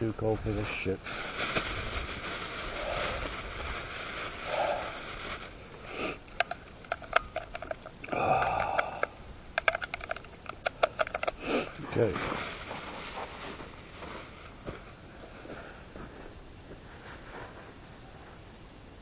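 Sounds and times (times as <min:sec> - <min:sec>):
steady hiss: 0:00.0 - 0:19.0
breathing sounds: 0:04.4 - 0:05.1, 0:05.8 - 0:06.4, 0:08.0 - 0:09.3, 0:11.3 - 0:11.8
metallic cartridge clicks: 0:06.2 - 0:11.4.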